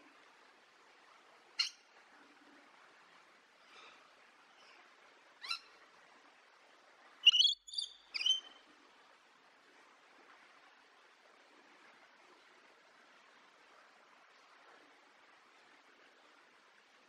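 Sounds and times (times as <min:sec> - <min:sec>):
parrot high-pitched calls: 0:01.6 - 0:01.8, 0:05.4 - 0:05.7, 0:07.2 - 0:08.6.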